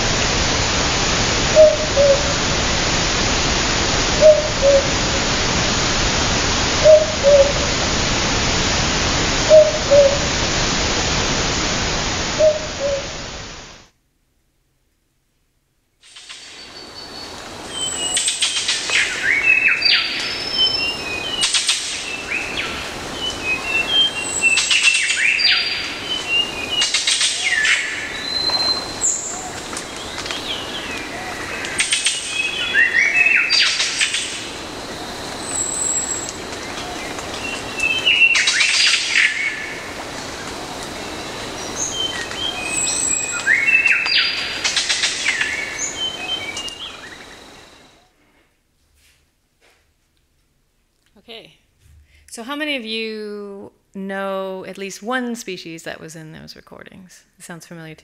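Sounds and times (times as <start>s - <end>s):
bird whistling rising and falling: 1.6s - 2.4s, 4.2s - 4.9s, 6.8s - 7.6s, 9.5s - 10.3s, 12.4s - 13.1s, 16.7s - 29.4s, 30.4s - 34.2s, 37.4s - 39.7s, 41.7s - 47.4s.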